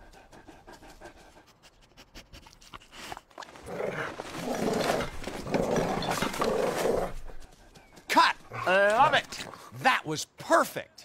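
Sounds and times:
cartoon dog sniffing: 0.6s - 3.3s.

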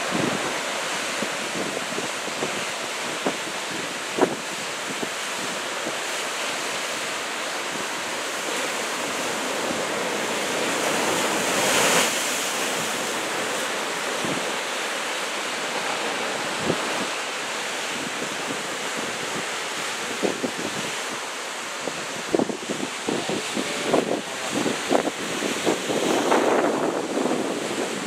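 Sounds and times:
ocean waves breaking: 0.0s - 28.0s.

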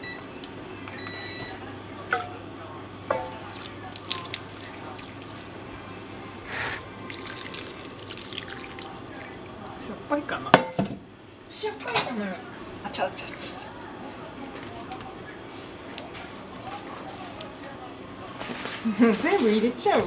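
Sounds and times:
sauce splashing and trickling: 2.1s - 5.5s, 7.1s - 9.6s.

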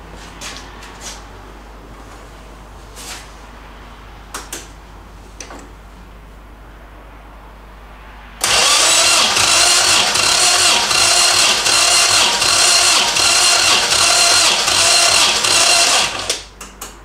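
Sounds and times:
engine cranking on starter motor: 8.4s - 16.5s.

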